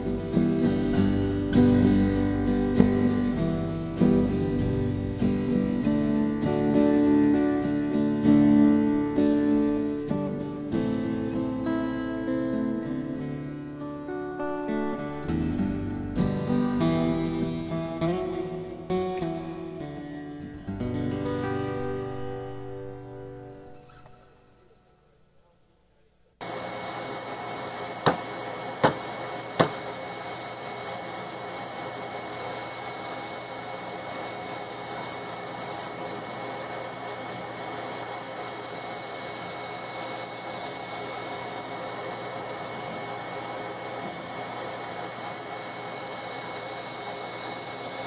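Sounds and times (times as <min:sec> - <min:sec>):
laser engraver running: 0:26.4 - 0:48.0.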